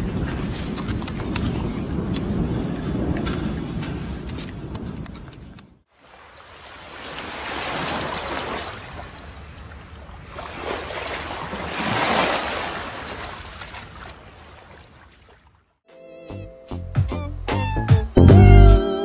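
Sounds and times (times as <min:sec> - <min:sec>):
small waves washing on beach: 0:05.9 - 0:15.7.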